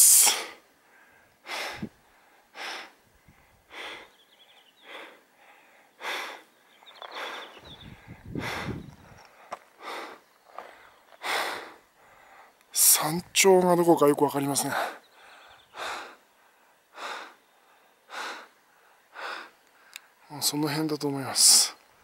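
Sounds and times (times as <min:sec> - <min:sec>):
person breathing hard: 0:00.0 - 0:12.6, 0:14.7 - 0:20.1.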